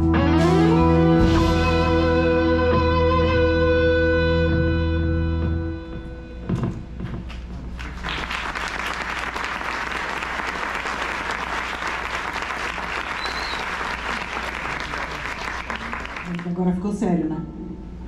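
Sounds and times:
audience applauding: 7.3s - 16.6s
high whistle: 13.0s - 14.0s.

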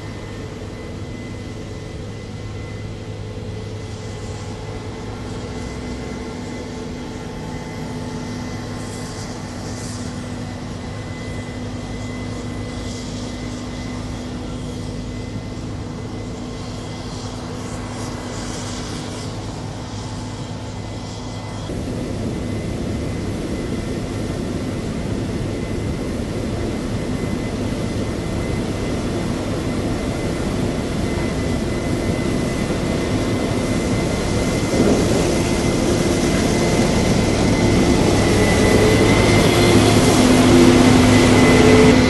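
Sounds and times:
engine drone: 0.0s - 42.0s
high whine: 19.0s - 42.0s.

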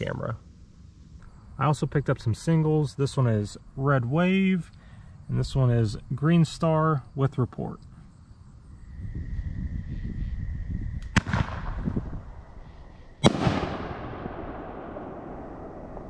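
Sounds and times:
firework bangs: 11.0s - 12.6s, 13.2s - 16.0s
echo of firework burst: 11.0s - 16.0s.

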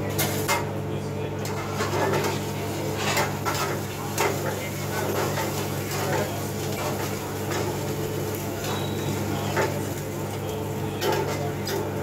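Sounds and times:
low mechanical hum: 0.0s - 12.0s
ladle scraping a frying pan: 1.5s - 7.9s
food sizzling in hot oil: 2.2s - 11.2s.

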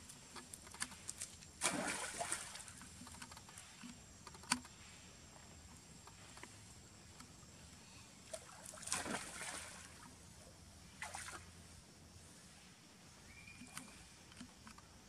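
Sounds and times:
water splashing: 1.6s - 3.2s, 8.3s - 10.1s.

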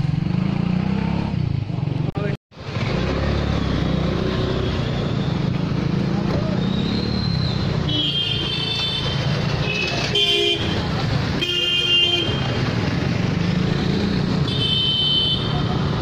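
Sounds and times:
vehicle horns honking: 7.8s - 12.6s, 14.4s - 15.7s.

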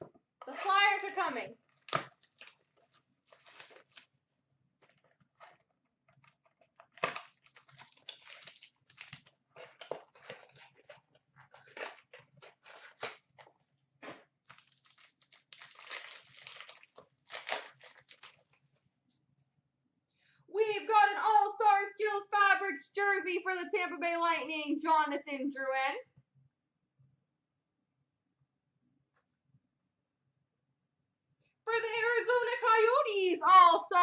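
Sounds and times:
plastic wrapping crinkling and tearing: 1.6s - 4.2s, 4.8s - 18.6s.

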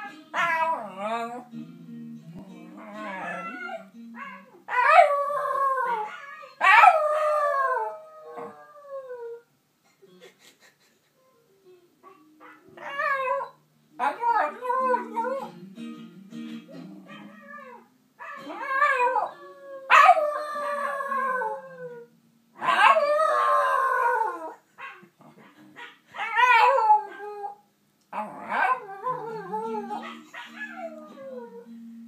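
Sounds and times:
recorded dog howling playback: 0.0s - 1.5s, 2.7s - 9.5s, 12.0s - 15.6s, 16.7s - 31.7s
dog howling: 2.8s - 9.4s, 16.7s - 24.6s, 28.2s - 31.7s.

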